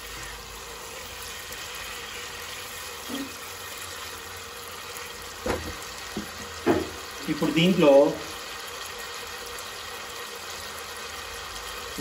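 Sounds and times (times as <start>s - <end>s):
prawns sizzling in oil: 0.0s - 12.0s
short knock: 5.4s - 7.0s.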